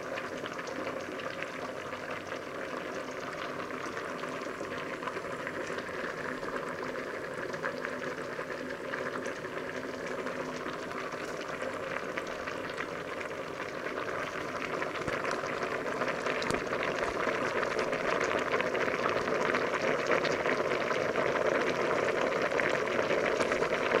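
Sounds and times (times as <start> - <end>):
water boiling in a pot: 0.0 - 24.0.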